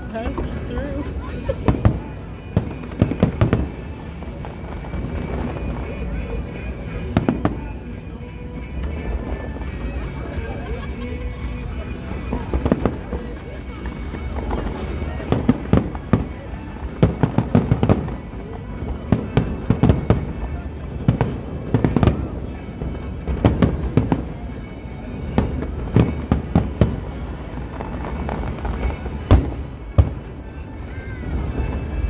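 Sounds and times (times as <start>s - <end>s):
fireworks bursting and crackling: 0.0s - 32.0s
heavy firework booms: 1.6s - 6.0s.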